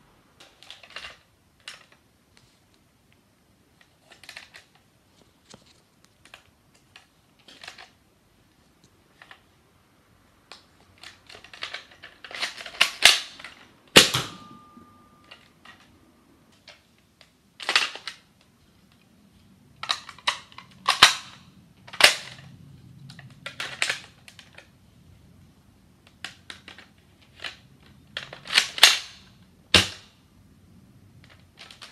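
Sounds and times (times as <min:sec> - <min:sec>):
plastic toy blaster clacking: 0:19.8 - 0:22.4.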